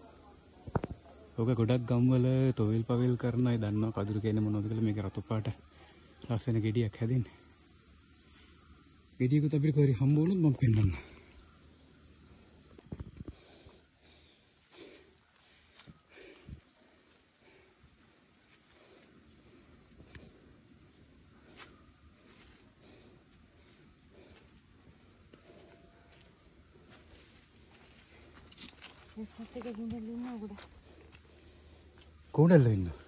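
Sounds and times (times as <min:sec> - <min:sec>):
forest insects chorus: 0:00.0 - 0:33.0
faint footsteps in undergrowth: 0:03.0 - 0:08.9, 0:12.8 - 0:33.0.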